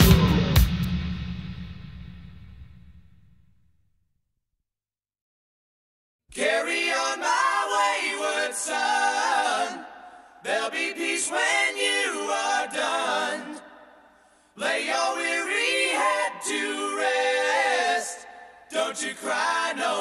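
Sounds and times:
a cappella voices singing in harmony: 6.3s - 20.0s.

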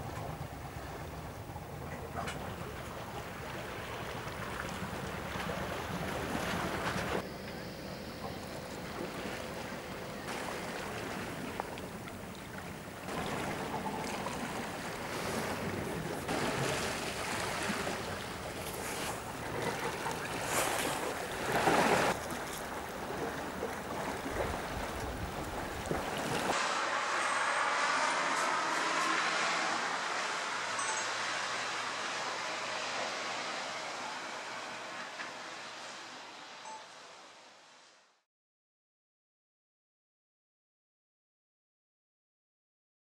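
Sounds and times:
sea wash: 0.0s - 37.9s
wind buffeting the microphone: 20.2s - 26.5s.

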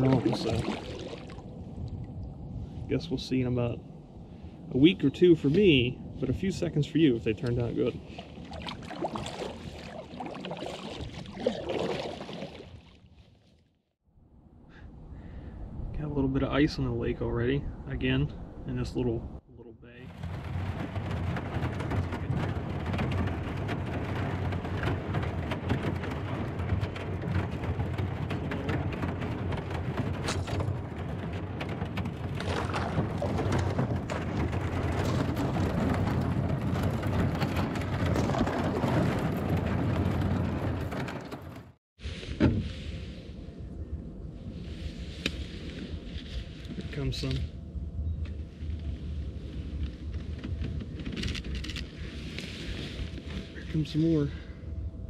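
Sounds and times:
low rumble: 0.0s - 12.0s, 14.1s - 55.0s
ice crackling against kayak: 7.3s - 13.0s, 20.1s - 41.8s.

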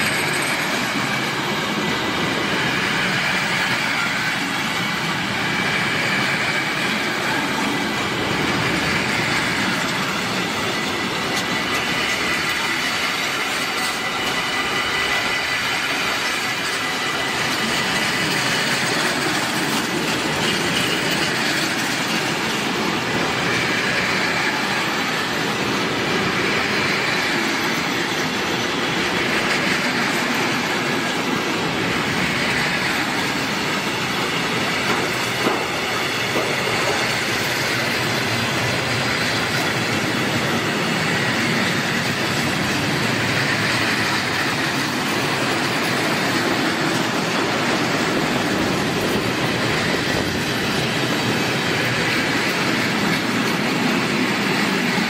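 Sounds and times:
high wheel squeal: 0.0s - 55.0s
steel wheels rumbling on rail: 0.0s - 55.0s.

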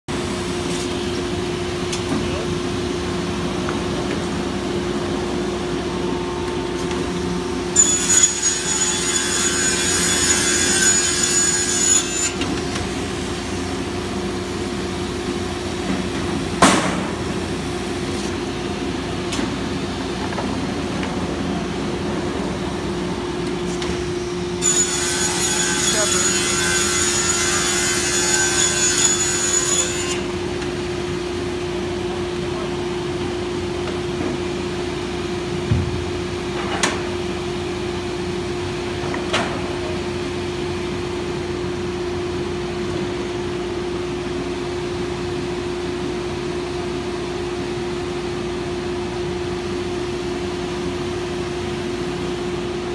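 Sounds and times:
circular saw cutting plywood: 7.8s - 12.5s, 24.6s - 30.3s.

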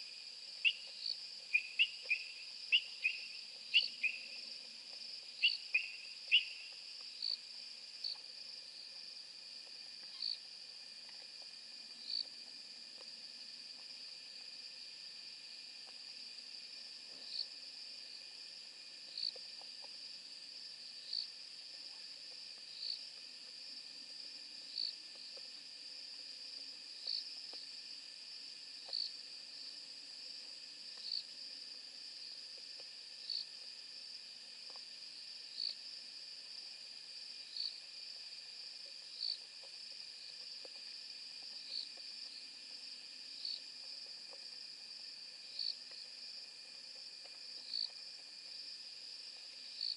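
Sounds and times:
night insects trilling: 0.0s - 49.9s
faint crackles of animal chewing: 8.0s - 14.6s.

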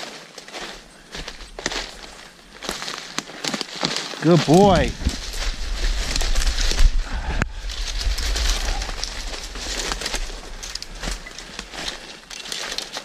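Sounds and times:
footsteps crunching through leaves and snow: 0.0s - 13.0s
twigs scraping: 0.0s - 13.0s
low rumble on microphone: 4.7s - 11.1s.

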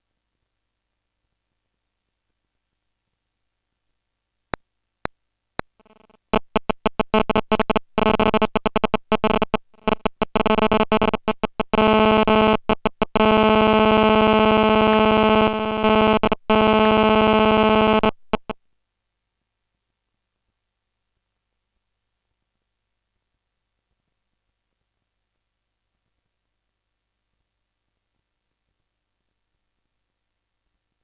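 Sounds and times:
harsh electronic buzzing: 5.8s - 18.6s.

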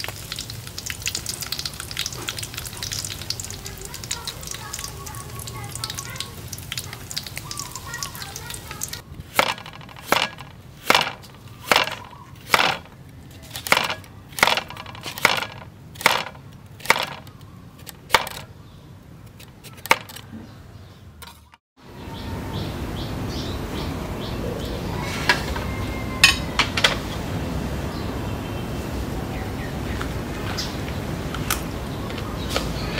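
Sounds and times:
knife chopping carrot on board: 9.3s - 12.9s.

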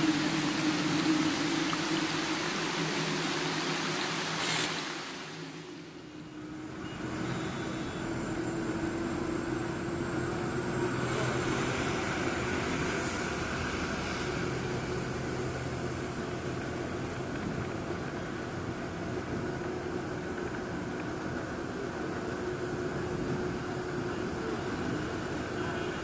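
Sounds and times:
rain hissing: 0.0s - 6.2s
low hum: 0.0s - 8.4s
bus engine drone and road noise: 0.0s - 26.0s.

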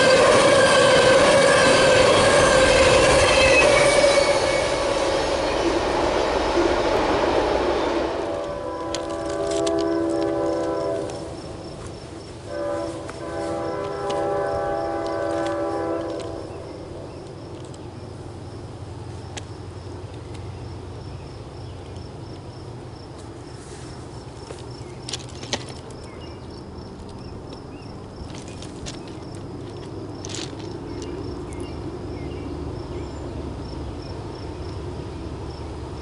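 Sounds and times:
locomotive air horn: 0.0s - 5.8s, 7.4s - 11.6s, 12.4s - 16.7s
train rumbling: 0.0s - 36.0s.

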